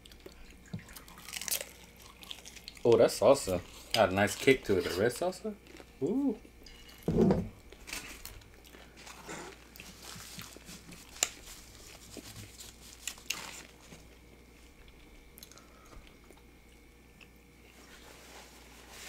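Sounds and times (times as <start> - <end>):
close chewing and biting: 0.0 - 3.0, 9.5 - 13.9.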